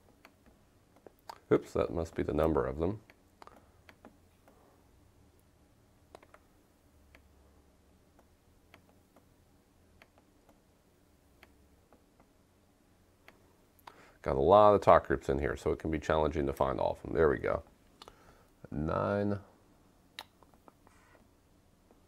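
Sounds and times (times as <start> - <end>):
faint room hum: 0.0 - 22.0
computer mouse and key clicks: 6.1 - 6.4, 8.1 - 9.3, 10.0 - 10.6.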